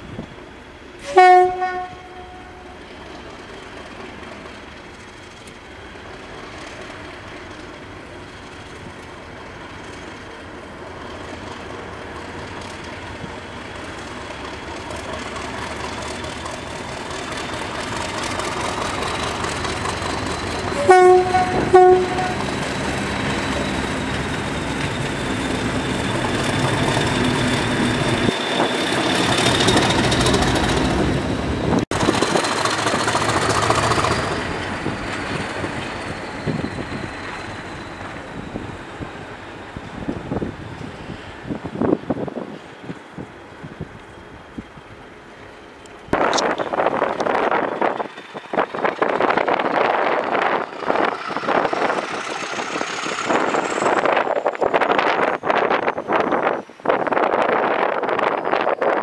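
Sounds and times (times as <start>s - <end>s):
diesel locomotive engine working: 0.0s - 59.0s
locomotive horn blasts: 1.0s - 2.8s, 20.8s - 22.5s.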